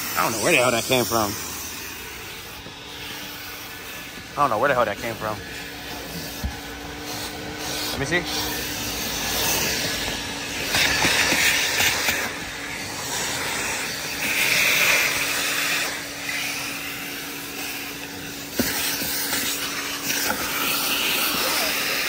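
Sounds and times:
vacuum cleaner running: 0.0s - 22.0s.

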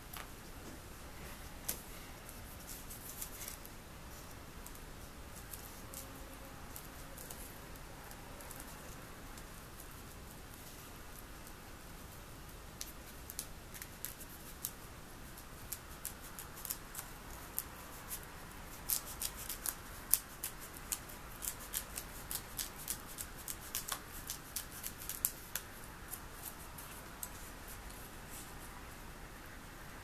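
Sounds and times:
scissors snipping foam: 18.9s - 26.6s.

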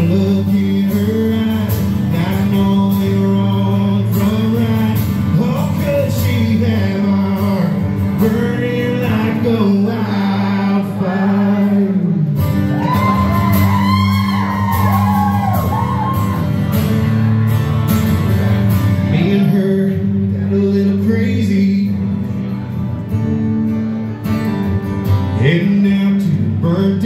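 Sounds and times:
person singing: 0.0s - 15.8s, 19.0s - 22.0s
acoustic guitar strumming: 0.0s - 27.0s
audience whooping and shouting: 12.6s - 16.9s.

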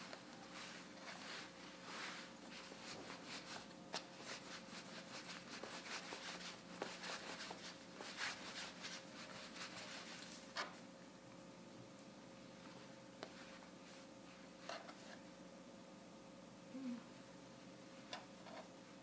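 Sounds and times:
hands rubbing dough: 0.0s - 10.8s.

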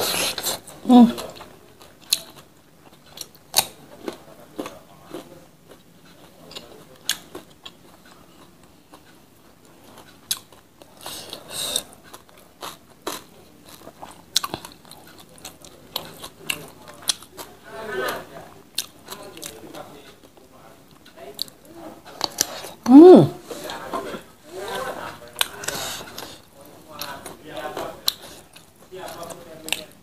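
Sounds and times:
person chewing: 9.8s - 17.5s.

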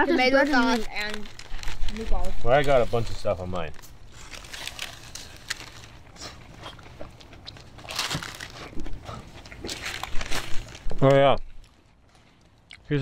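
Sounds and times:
paper wrappers crinkling: 0.0s - 12.6s
people chewing: 0.0s - 13.0s.

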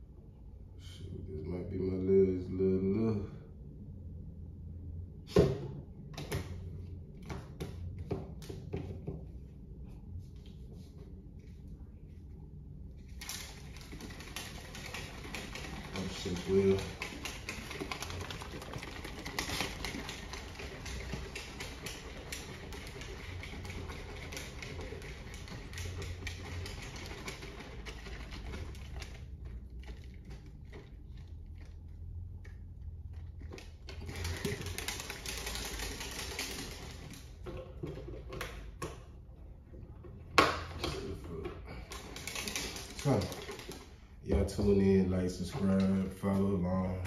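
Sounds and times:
shaker bottle rattling: 13.1s - 32.0s, 32.6s - 38.4s, 41.7s - 44.0s.

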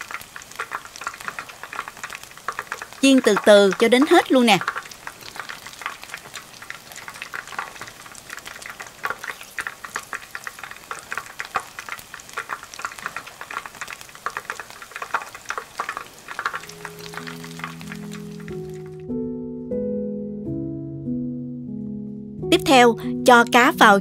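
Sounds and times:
fish deep-frying in oil: 0.0s - 19.0s
background music: 16.6s - 24.0s.

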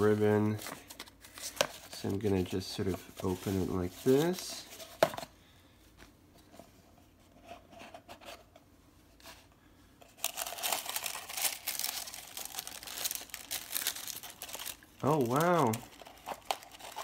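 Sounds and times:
tissue paper crinkling: 0.0s - 5.0s, 10.2s - 17.0s.

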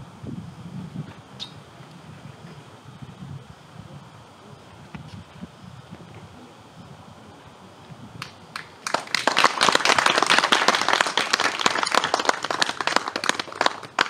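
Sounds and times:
audience applause: 8.5s - 14.0s.

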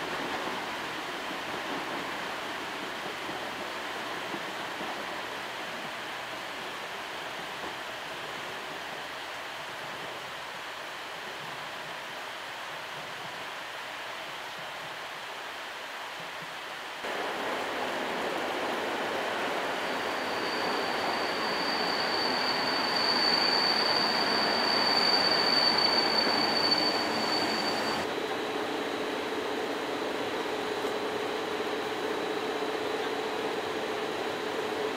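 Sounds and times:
train running noise: 0.0s - 34.9s
high squeal of train brakes: 18.9s - 34.9s.

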